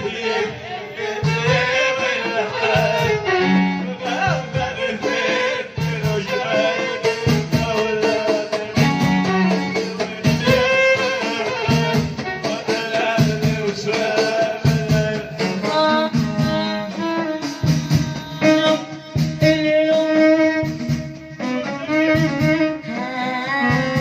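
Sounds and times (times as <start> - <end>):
violin playing: 0.0 - 14.0, 15.3 - 24.0
frame drums with jingles: 4.1 - 22.7.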